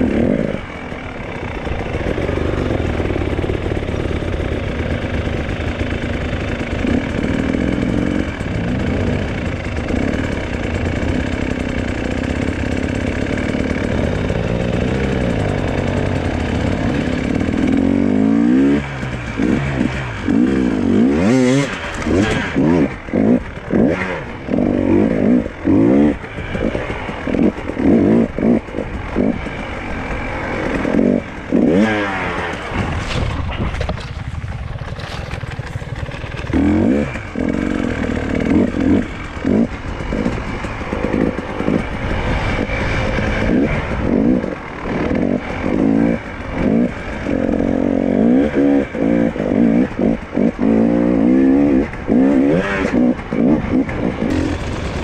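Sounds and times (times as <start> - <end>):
two-stroke bike engine revving: 0.0 - 55.0.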